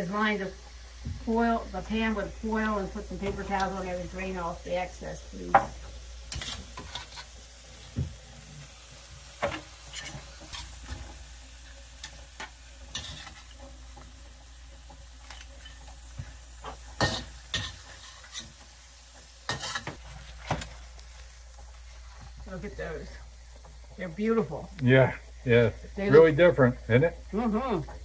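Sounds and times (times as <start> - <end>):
crabs sizzling in a wok: 0.0 - 28.0
utensil knocking and scraping wok: 0.4 - 4.4, 5.4 - 22.6.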